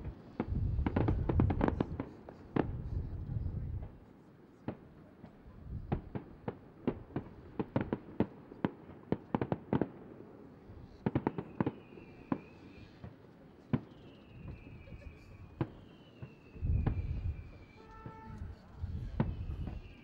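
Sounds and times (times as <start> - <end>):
fireworks bangs: 0.0 - 2.9, 10.8 - 20.0
high firework whistle: 13.8 - 20.0.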